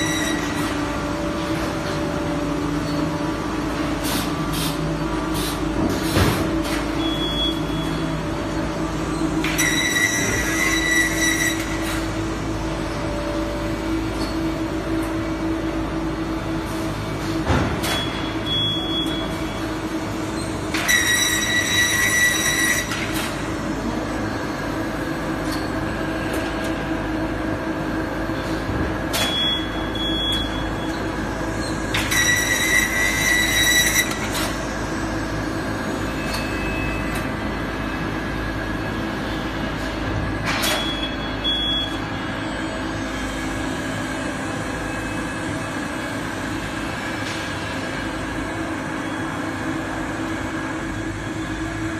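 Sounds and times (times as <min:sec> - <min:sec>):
high-pitched metallic squeal: 0:00.0 - 0:00.6, 0:09.4 - 0:11.9, 0:20.8 - 0:23.0, 0:31.6 - 0:34.3
machinery hum: 0:00.0 - 0:51.9.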